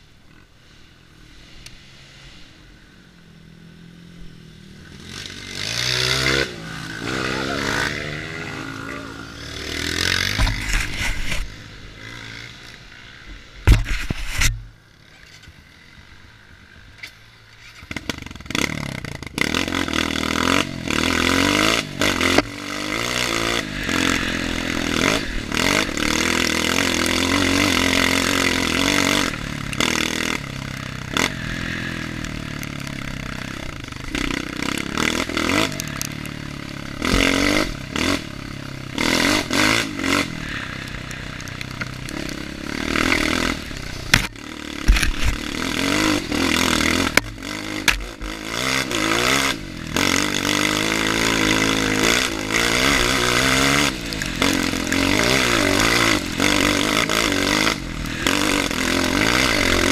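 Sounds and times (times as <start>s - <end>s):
motorbike engine revving: 3.5s - 59.9s
bike rattling and scraping: 4.4s - 59.9s.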